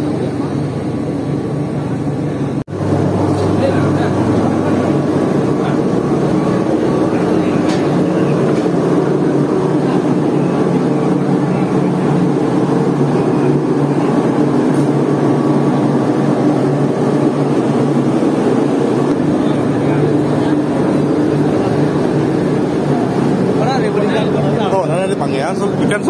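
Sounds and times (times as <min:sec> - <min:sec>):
ship engines humming: 0:00.2 - 0:26.0.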